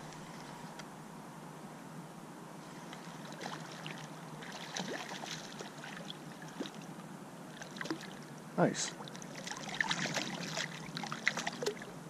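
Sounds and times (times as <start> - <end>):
fish splashing at surface: 9.3 - 11.9.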